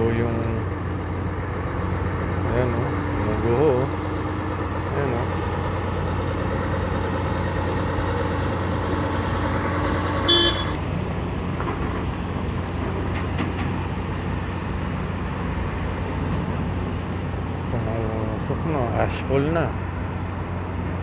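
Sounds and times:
low outdoor rumble: 0:00.0 - 0:21.0
vehicle horn toot: 0:10.2 - 0:10.8.

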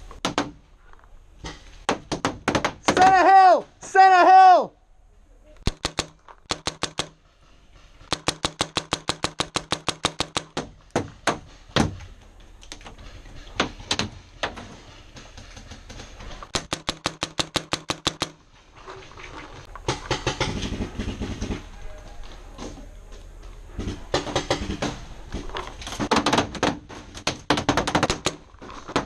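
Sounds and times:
paintball markers firing: 0:05.6 - 0:07.2, 0:08.1 - 0:10.6, 0:16.5 - 0:18.4.

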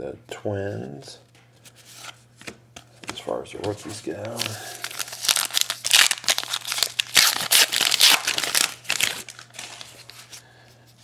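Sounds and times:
wrapper crinkling as torn open: 0:04.2 - 0:10.3.

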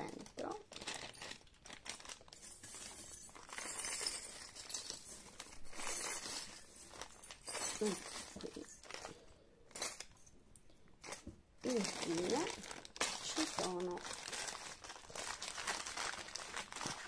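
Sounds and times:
plastic bag crinkling: 0:00.0 - 0:10.2, 0:11.0 - 0:17.0
metal charms clinking: 0:02.2 - 0:10.3.

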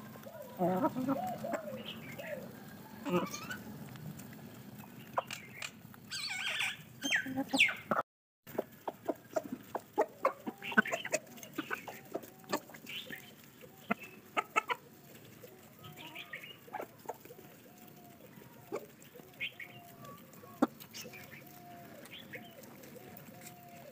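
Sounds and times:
chicken squawking call: 0:00.0 - 0:03.7, 0:06.1 - 0:08.0, 0:08.6 - 0:14.8
beaks pecking feed: 0:00.0 - 0:23.9
chickens clucking: 0:00.0 - 0:23.9.

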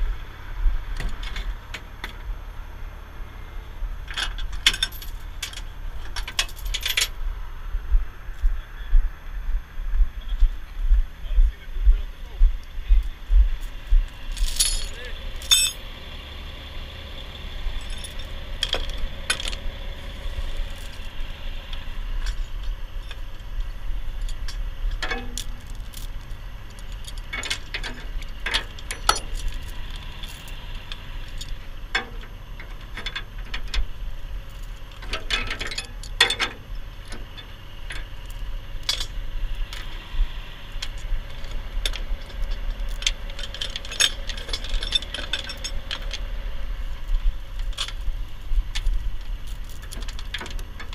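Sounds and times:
low rumble: 0:00.0 - 0:35.0, 0:35.9 - 0:50.9
tow chain clinking and rattling: 0:04.0 - 0:07.2, 0:13.0 - 0:16.0, 0:17.1 - 0:50.9.

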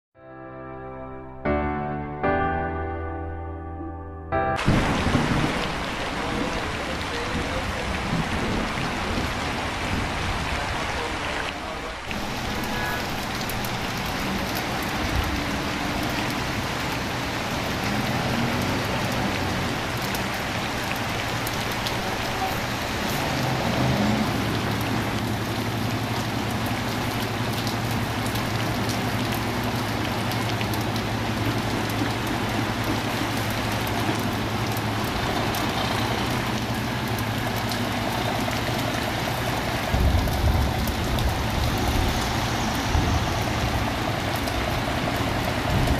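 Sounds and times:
rain on pavement: 0:04.6 - 0:45.9
traffic: 0:04.6 - 0:45.9
vehicle rumbling past: 0:12.2 - 0:30.4, 0:31.1 - 0:45.9.

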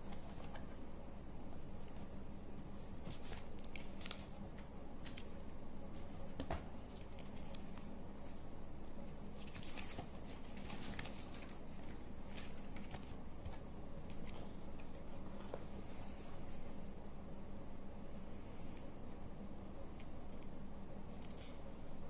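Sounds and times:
cardboard and paper rustling: 0:00.0 - 0:00.8, 0:01.8 - 0:14.3.

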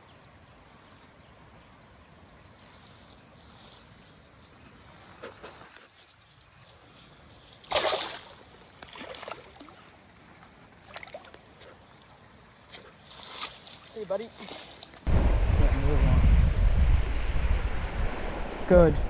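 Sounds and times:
fish splashing in water: 0:07.6 - 0:09.8.

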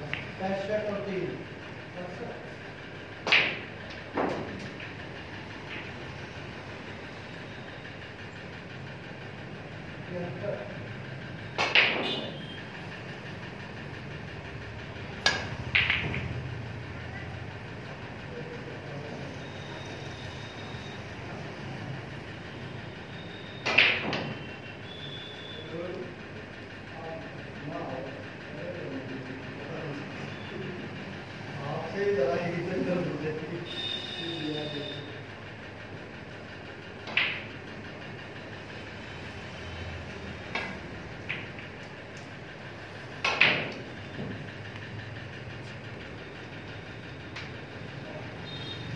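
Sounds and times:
snooker balls clicking: 0:00.0 - 0:00.6, 0:03.0 - 0:06.1, 0:11.5 - 0:12.3, 0:15.1 - 0:16.6, 0:23.6 - 0:24.4, 0:36.8 - 0:38.1, 0:40.4 - 0:42.5, 0:43.1 - 0:46.6.

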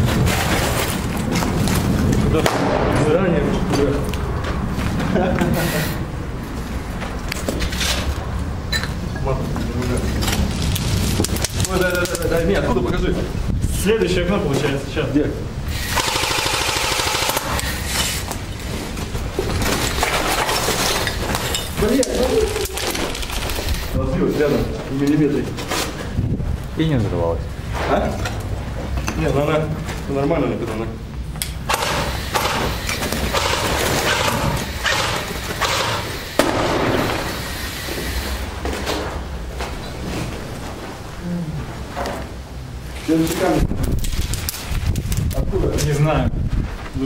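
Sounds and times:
airsoft gun full-auto burst: 0:15.7 - 0:17.8, 0:31.7 - 0:37.6
footsteps on gritty concrete: 0:45.8 - 0:47.0.

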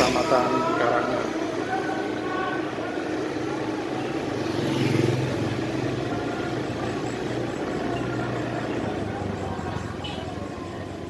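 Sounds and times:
road noise: 0:00.0 - 0:11.0.

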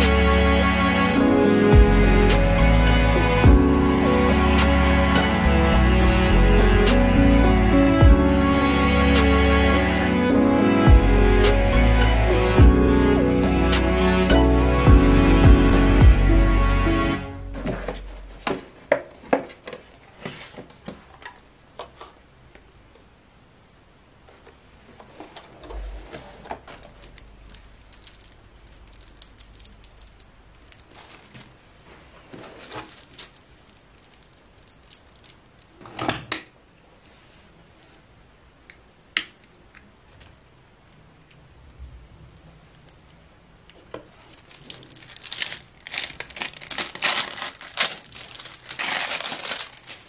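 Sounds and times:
paper packaging rustling: 0:25.1 - 0:35.5, 0:43.9 - 0:50.0.

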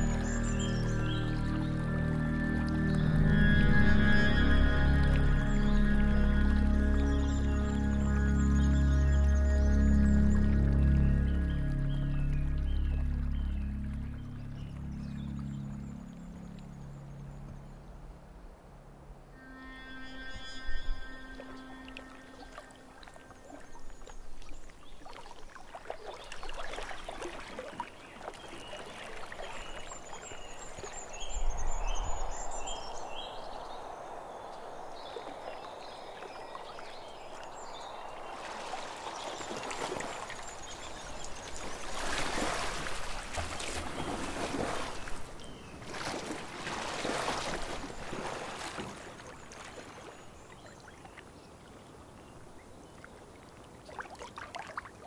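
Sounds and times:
water sloshing and splashing: 0:21.3 - 0:31.8, 0:34.7 - 0:51.7, 0:52.8 - 0:55.0.

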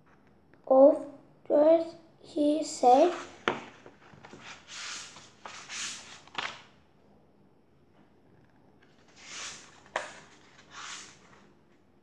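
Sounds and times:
book pages flipping: 0:03.1 - 0:06.7, 0:08.8 - 0:11.6.

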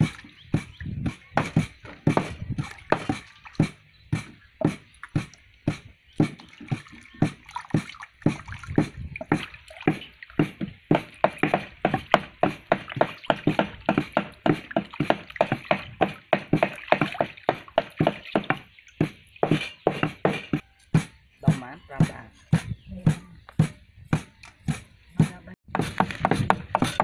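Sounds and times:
hands splashing in water: 0:00.0 - 0:20.6.

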